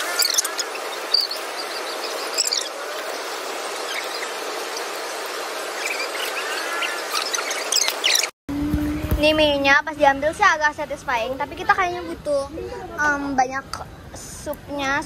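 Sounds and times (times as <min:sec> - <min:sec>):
high-pitched chirps and squeaks: 0:00.0 - 0:02.8, 0:05.7 - 0:08.3.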